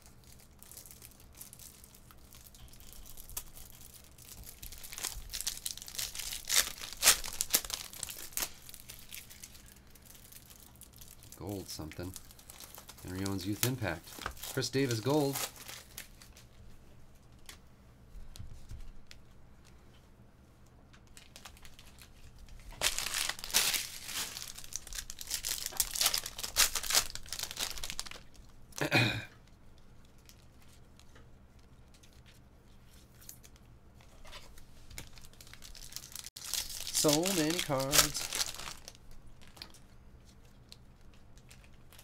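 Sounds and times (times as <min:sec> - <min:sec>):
foil wrappers tearing and crinkling: 0:00.1 - 0:16.5, 0:21.1 - 0:28.5, 0:35.0 - 0:39.8.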